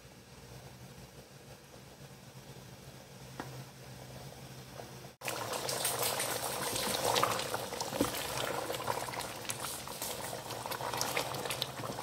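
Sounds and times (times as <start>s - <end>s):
curry bubbling in a pot: 5.2s - 12.0s.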